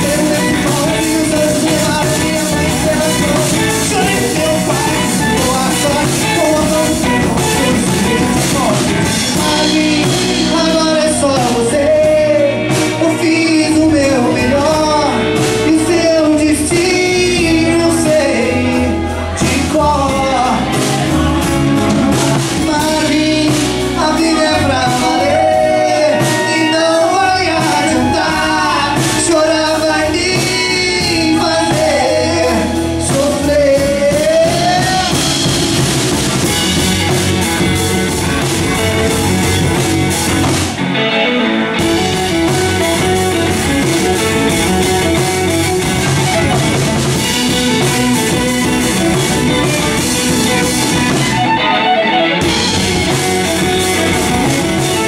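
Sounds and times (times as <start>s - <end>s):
violin melody: 0.0s - 11.1s, 34.8s - 55.0s
drums: 0.0s - 55.0s
electric bass: 0.0s - 55.0s.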